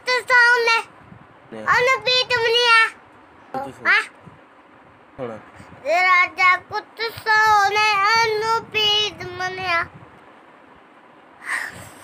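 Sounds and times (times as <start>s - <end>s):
boy singing unaccompanied: 5.8s - 9.9s.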